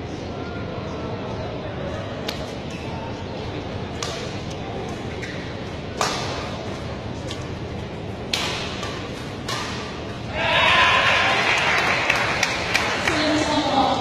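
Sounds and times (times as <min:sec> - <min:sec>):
racket striking shuttlecock: 0:03.9 - 0:06.6, 0:08.2 - 0:10.3
crowd cheering and clapping: 0:10.3 - 0:13.5.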